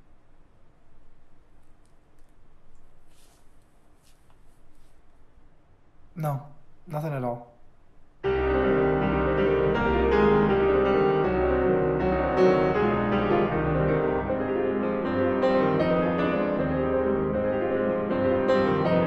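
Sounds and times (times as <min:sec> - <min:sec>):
piano music: 0:08.2 - 0:19.0.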